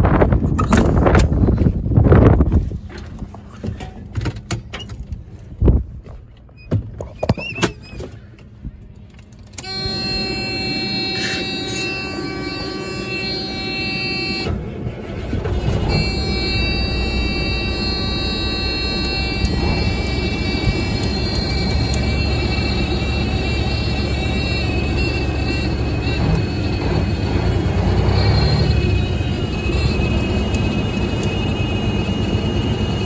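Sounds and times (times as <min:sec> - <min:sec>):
diesel engine idling: 0:08.2 - 0:33.0
steady buzzing tone: 0:09.6 - 0:14.5, 0:15.6 - 0:33.0.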